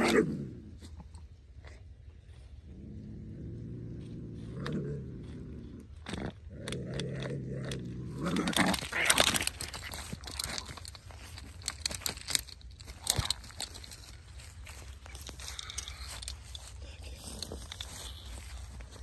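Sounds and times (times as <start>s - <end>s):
dry grass crunching underfoot: 3.8s - 19.0s
scattered crackles and clicks: 4.0s - 19.0s.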